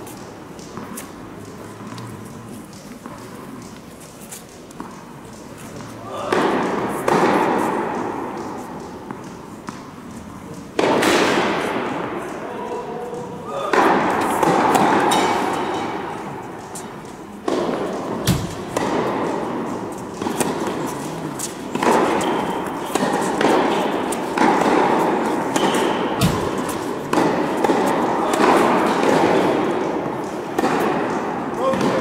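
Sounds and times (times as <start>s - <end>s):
racquets hitting tennis ball echoing: 0.0s - 32.0s.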